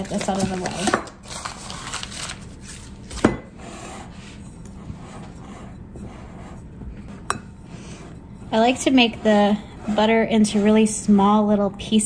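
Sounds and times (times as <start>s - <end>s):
pastry blender scraping bowl: 3.2s - 11.4s.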